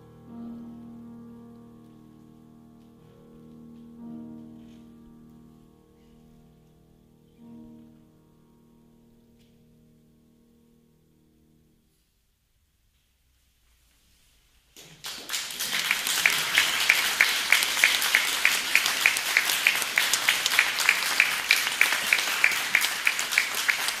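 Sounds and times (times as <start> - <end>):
audience applause: 14.8 - 24.0
close hands clapping steadily: 14.8 - 24.0.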